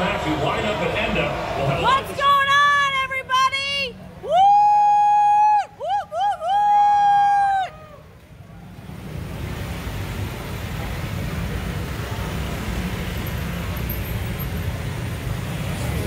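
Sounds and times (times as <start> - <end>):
traffic passing: 0.0 - 16.0
high whoop: 4.2 - 8.2.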